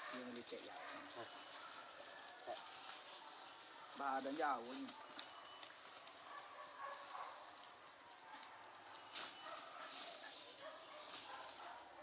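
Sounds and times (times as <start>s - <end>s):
forest insects droning: 0.0s - 12.0s.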